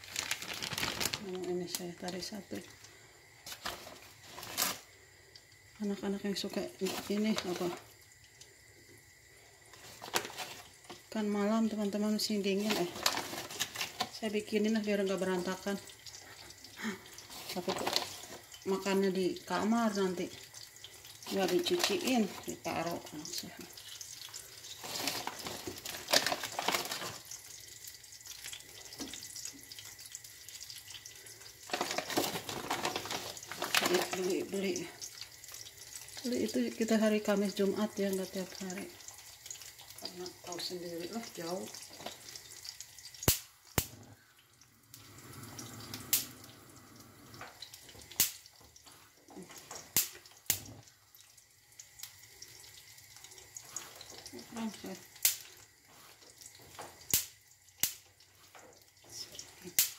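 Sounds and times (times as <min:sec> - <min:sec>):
food deep-frying in oil: 0:00.0 - 0:59.9
sharp crack of oil: 0:42.0 - 0:44.0, 0:45.9 - 0:46.4, 0:48.0 - 0:48.5, 0:49.6 - 0:50.7, 0:55.1 - 0:55.5, 0:57.0 - 0:58.2, 0:59.7 - 0:59.9.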